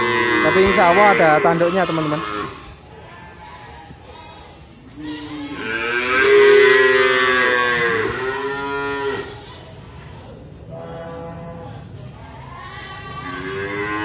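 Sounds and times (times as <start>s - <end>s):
cow mooing: 0.0s - 2.6s, 5.4s - 9.4s, 13.2s - 14.0s.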